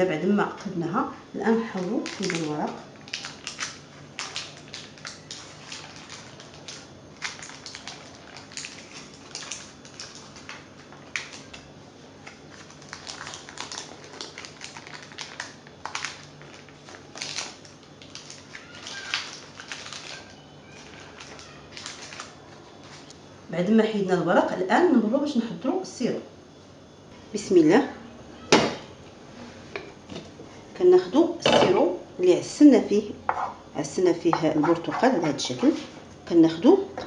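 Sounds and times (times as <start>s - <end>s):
baking parchment crackling: 1.6s - 23.1s.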